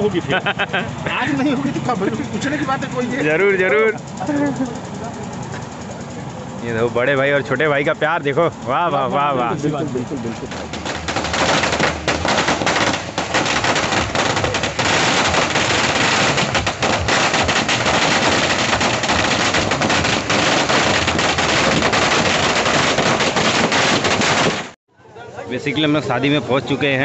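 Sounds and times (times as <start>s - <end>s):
firecrackers going off: 9.0s - 24.8s.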